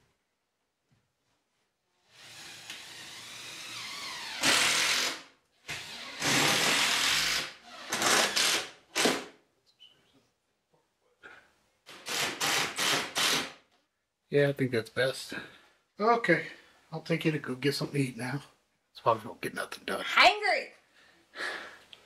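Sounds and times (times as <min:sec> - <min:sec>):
cordless drill driving screws: 0:02.1 - 0:09.3, 0:11.9 - 0:13.6.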